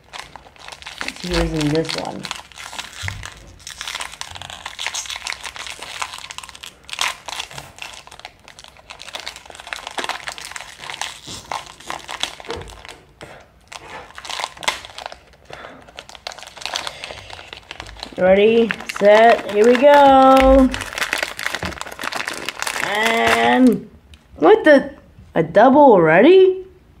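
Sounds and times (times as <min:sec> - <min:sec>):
foil packet crinkling and tearing: 0:00.0 - 0:23.8.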